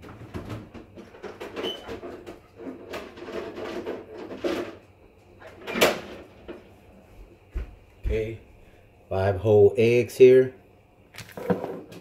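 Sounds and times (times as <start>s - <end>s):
things rattling in refrigerator: 0.0s - 6.7s, 11.2s - 12.0s.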